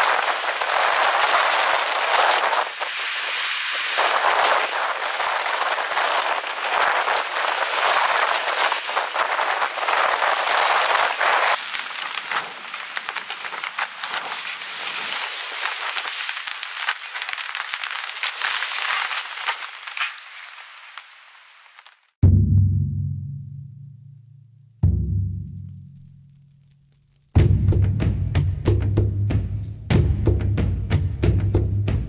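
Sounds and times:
heavy rain falling: 0.0s - 22.1s.

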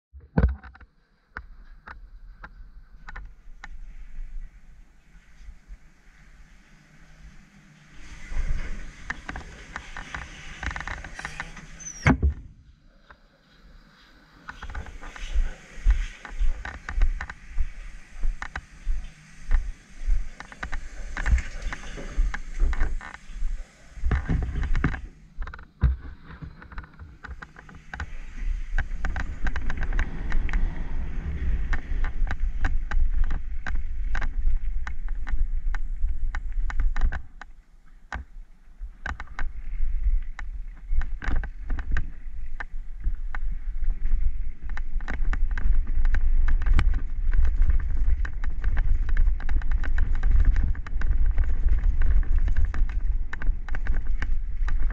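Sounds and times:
wind on microphone: 14.5s - 37.6s, 38.8s - 54.9s
bike knocking and rattling: 40.3s - 54.9s.

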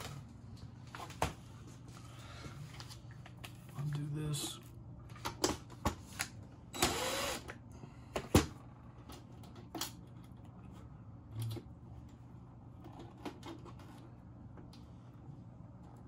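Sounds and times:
low steady hum: 0.0s - 16.0s
cordless drill running: 6.7s - 7.6s.

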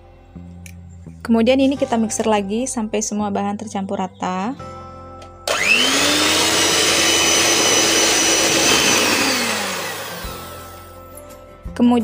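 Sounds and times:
electric hand mixer whining: 5.5s - 11.0s.

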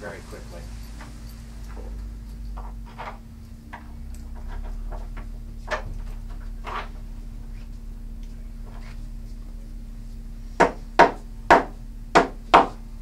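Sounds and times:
steady low hum: 0.0s - 13.0s
wooden bed frame knocks: 10.6s - 12.8s.

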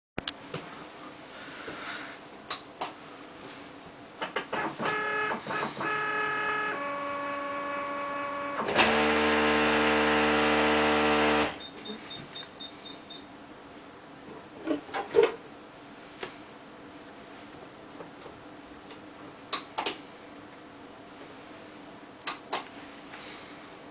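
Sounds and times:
harsh printer buzz: 4.6s - 11.6s
printer motor whining: 4.6s - 11.6s.

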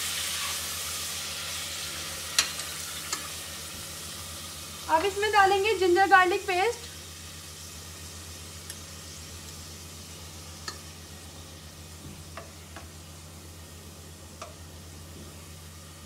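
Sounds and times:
meat sizzling in oil: 0.0s - 16.0s.

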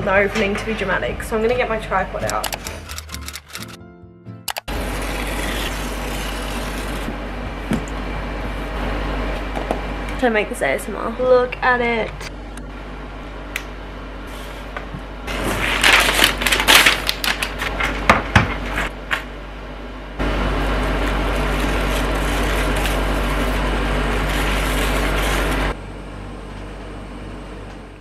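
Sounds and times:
paper packaging crinkling: 15.3s - 18.0s, 20.9s - 25.7s.

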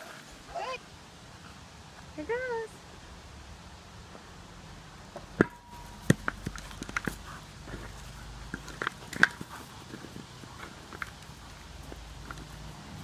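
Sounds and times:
ball knocks and thumps: 5.2s - 9.5s.

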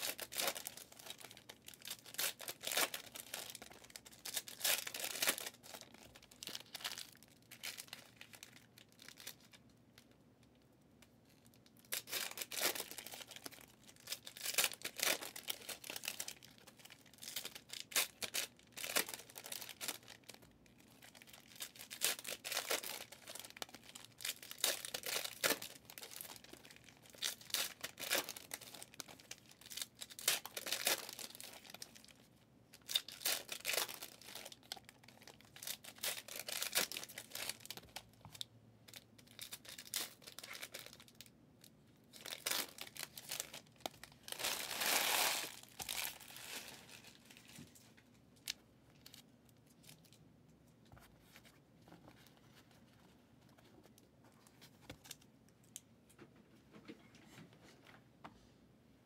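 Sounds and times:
foil wrappers tearing and crinkling: 0.0s - 9.5s, 11.8s - 32.1s, 32.8s - 38.0s, 42.1s - 47.6s.

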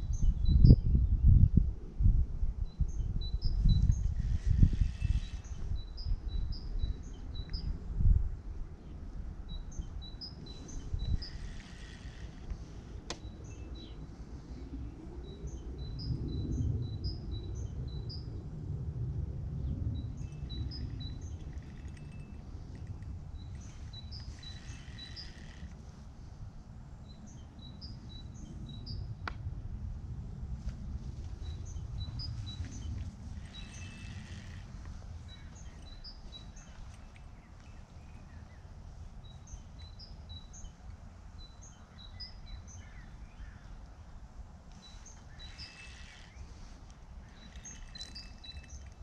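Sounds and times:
wind rumbling on microphone: 0.0s - 49.0s
songbird chirping: 8.8s - 18.3s, 19.7s - 26.0s, 31.3s - 49.0s.

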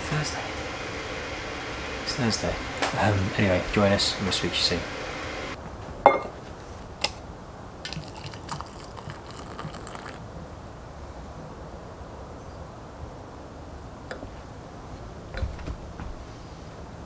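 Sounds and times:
water pouring into mug: 7.9s - 10.2s.

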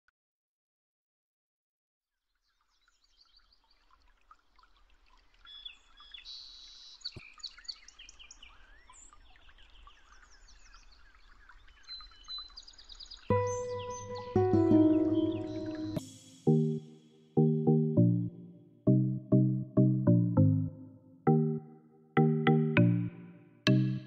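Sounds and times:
birds chirping and singing: 13.3s - 16.0s.

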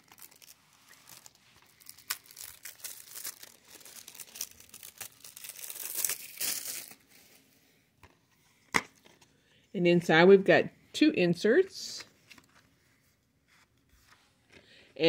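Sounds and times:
plastic shrink wrap crinkling: 0.0s - 7.4s.

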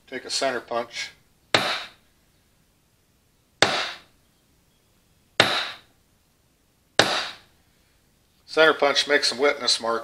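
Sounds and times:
hammer striking metal punch: 1.6s - 1.9s, 3.6s - 4.0s, 5.4s - 5.8s, 7.0s - 7.4s.

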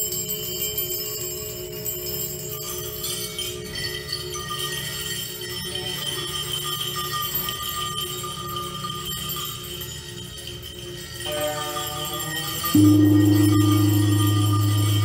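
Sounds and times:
struck metal bowls ringing: 9.0s - 15.0s
steady low drone: 12.8s - 15.0s.

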